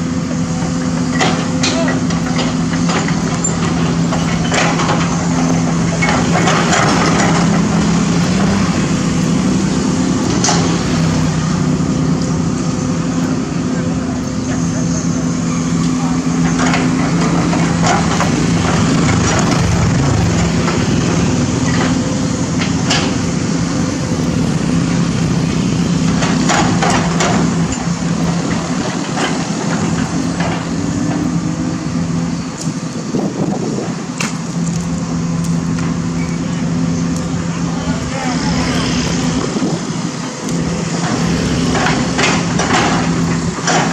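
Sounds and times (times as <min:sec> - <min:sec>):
excavator diesel engine humming: 0:00.0 - 0:43.9
sharp clanks and knocks: 0:01.0 - 0:09.3, 0:10.2 - 0:11.0, 0:16.3 - 0:23.4, 0:26.0 - 0:31.4, 0:40.9 - 0:43.9.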